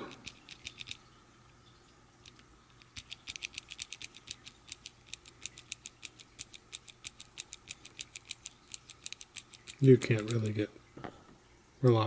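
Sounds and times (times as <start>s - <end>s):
mechanical pencil clicking: 0.0s - 1.0s, 2.9s - 10.5s.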